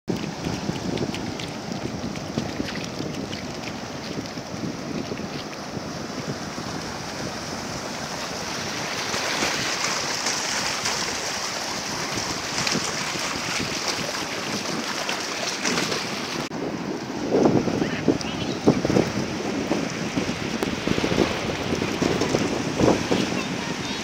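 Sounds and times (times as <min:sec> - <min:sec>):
dogs splashing through water: 0:00.1 - 0:05.7, 0:06.3 - 0:16.5
surf washing in: 0:00.1 - 0:24.0.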